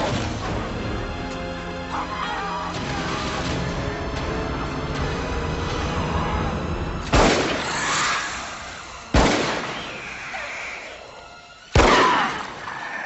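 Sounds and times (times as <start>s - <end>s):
rifle shots: 7.1s - 7.8s, 9.1s - 10.0s, 11.8s - 12.7s.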